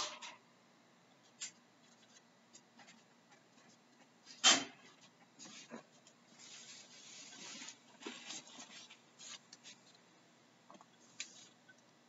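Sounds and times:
faint scratchy rustling: 5.0s - 10.0s.

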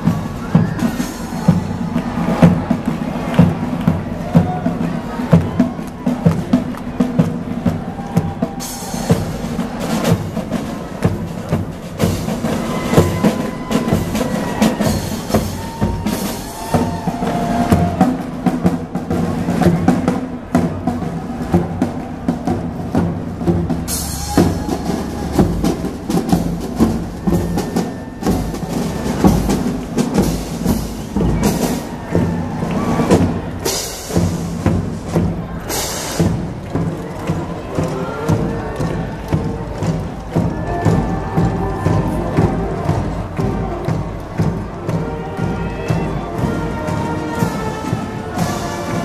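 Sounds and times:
snare and bass drums marching beat: 0.0s - 49.0s
brass and saxophone melody: 40.5s - 49.0s.

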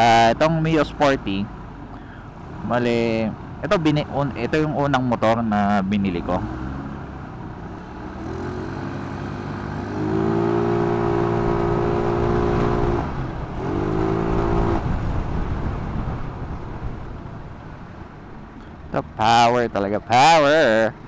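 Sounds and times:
road and wind noise: 0.0s - 21.0s
scooter engine revving: 6.2s - 15.2s.

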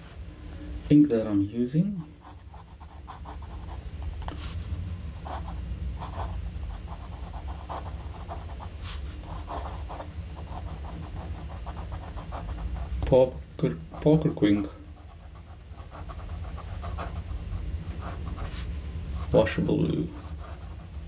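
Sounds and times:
steady low hum: 0.0s - 21.0s
fountain pen scratching on paper: 5.2s - 13.0s, 13.9s - 19.4s, 20.0s - 21.0s.

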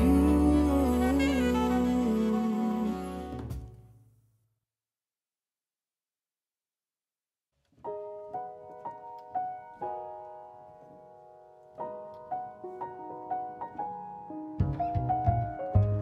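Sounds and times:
slow piano melody: 0.0s - 3.9s, 7.8s - 16.0s.

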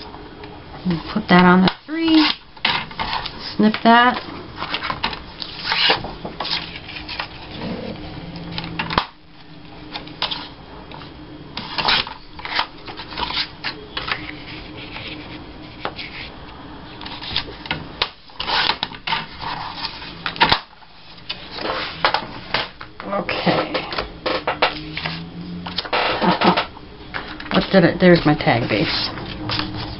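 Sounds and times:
paper rustling and sliding: 4.2s - 9.0s, 11.6s - 16.4s, 18.4s - 22.7s, 24.8s - 26.3s, 27.1s - 29.9s.

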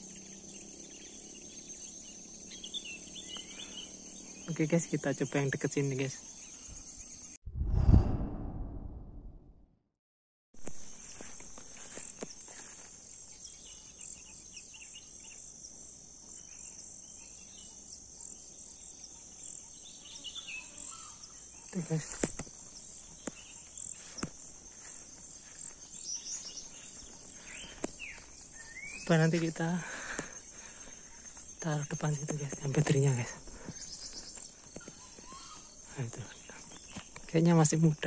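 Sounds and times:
high-pitched insect chorus: 0.0s - 7.4s, 10.6s - 38.0s
whoosh: 7.5s - 9.6s.

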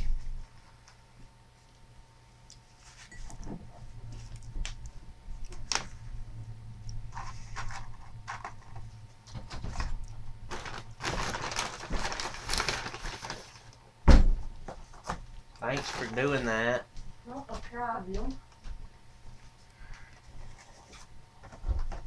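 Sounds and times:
steady low hum: 0.0s - 22.0s
paper packaging rustling: 9.6s - 13.8s, 14.9s - 16.6s.

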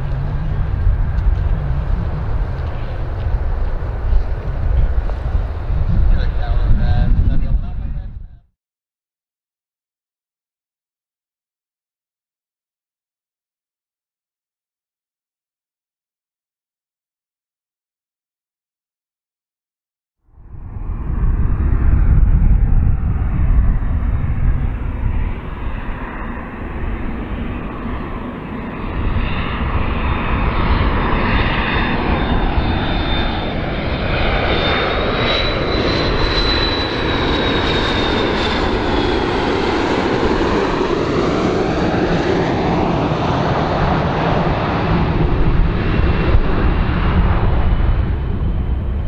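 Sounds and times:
thin whistling jet whine: 0.0s - 7.9s, 20.4s - 49.0s
jet airliner rumble: 0.0s - 8.5s, 20.3s - 49.0s.

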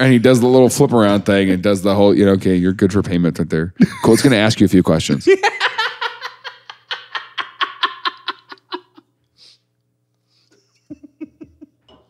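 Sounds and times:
man laughing: 3.8s - 4.6s, 5.2s - 9.1s, 10.5s - 11.8s.

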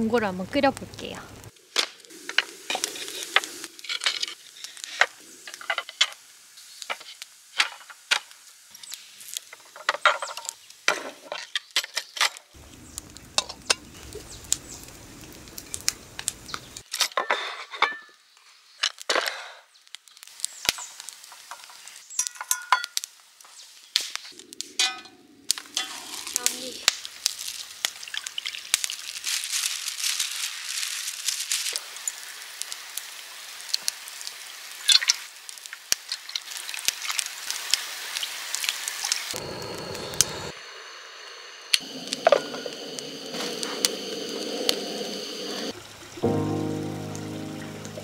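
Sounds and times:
camp stove parts clicking and clinking: 9.4s - 12.5s, 13.4s - 13.9s, 16.9s - 18.2s, 21.4s - 23.1s, 24.7s - 26.4s.

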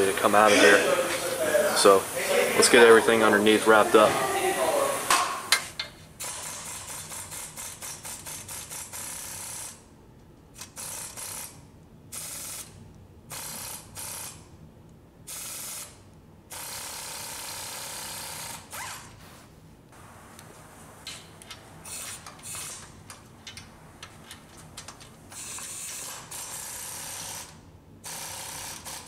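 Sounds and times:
air ratchet clicking: 6.2s - 9.8s, 10.6s - 11.6s, 21.1s - 29.0s.

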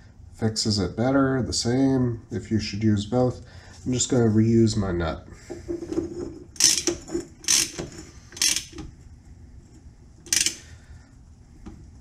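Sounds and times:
socket ratchet clicking: 6.6s - 8.8s, 10.2s - 10.7s.

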